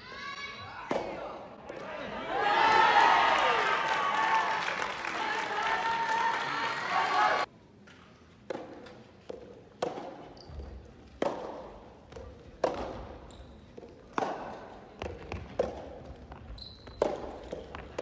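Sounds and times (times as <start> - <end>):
racket hitting ball: 8.5 - 10.2, 11.1 - 13.2, 13.8 - 16.0, 17.0 - 18.0
shoe squeaks: 13.2 - 13.8, 16.4 - 17.4
ball bouncing on wooden floor: 15.0 - 18.0.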